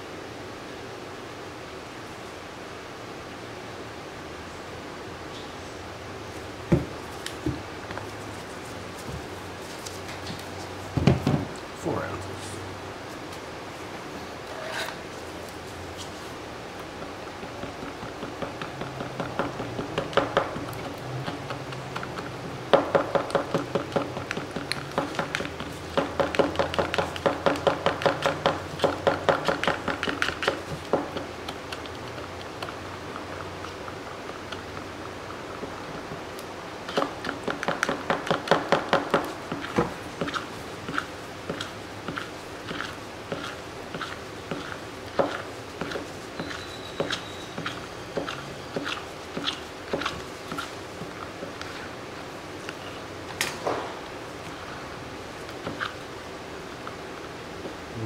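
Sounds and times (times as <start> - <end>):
stick stirring resin in plastic cup: 39.5 - 51.9.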